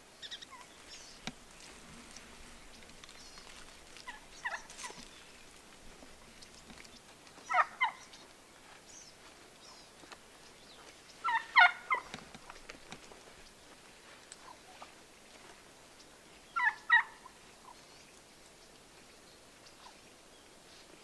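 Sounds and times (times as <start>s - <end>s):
turkey gobbling: 3.9s - 5.1s, 7.4s - 8.1s, 11.2s - 12.2s, 16.6s - 17.8s.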